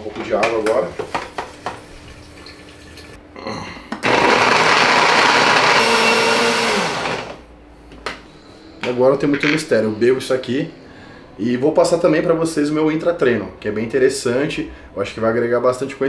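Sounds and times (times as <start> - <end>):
electric blender running: 4.0 - 7.5.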